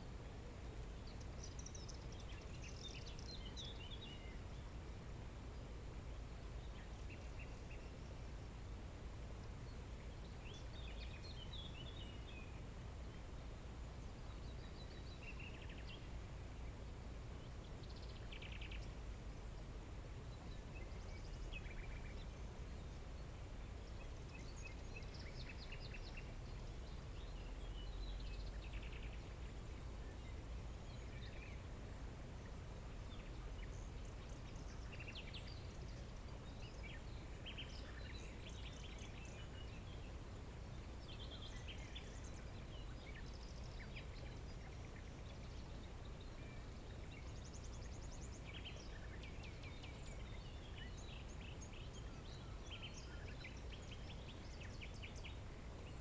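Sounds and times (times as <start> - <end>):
low background rumble: 0.0 - 56.0
birds chirping and trilling: 32.4 - 56.0.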